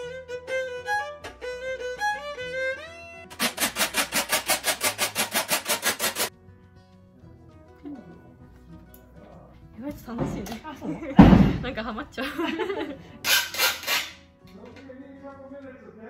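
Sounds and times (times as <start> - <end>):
violin melody: 0.0 - 3.4.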